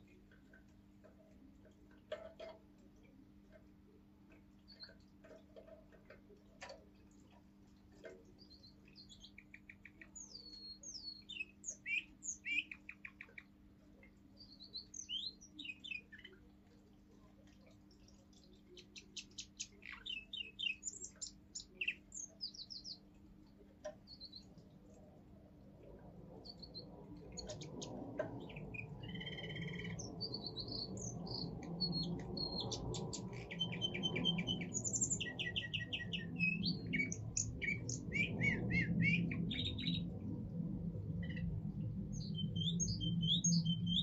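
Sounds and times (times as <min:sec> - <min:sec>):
canary singing trills: 0:08.1 - 0:13.6, 0:14.3 - 0:16.5, 0:17.6 - 0:23.1, 0:23.9 - 0:24.7, 0:26.3 - 0:40.1, 0:41.2 - 0:44.0
low rumbling noise: 0:24.1 - 0:44.0.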